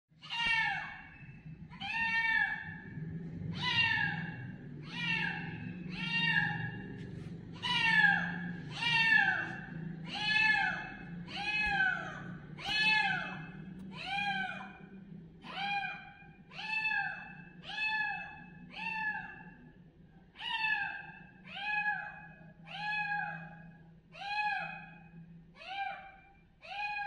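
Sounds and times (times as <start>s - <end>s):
faint low hum: 0.2s - 27.0s
kitten meowing: 3.5s - 6.8s, 7.6s - 14.7s, 20.4s - 23.6s, 24.2s - 25.0s.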